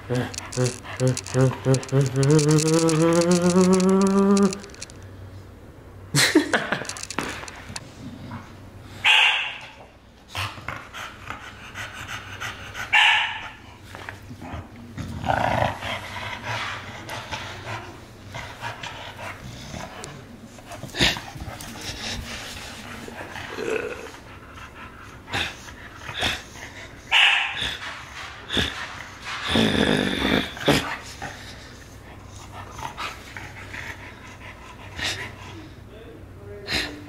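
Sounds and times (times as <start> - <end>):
dog growling: 0.0 - 5.0, 14.5 - 16.2, 23.2 - 24.3, 29.4 - 31.4
dog barking: 9.0 - 9.6, 12.9 - 13.5, 27.1 - 27.5.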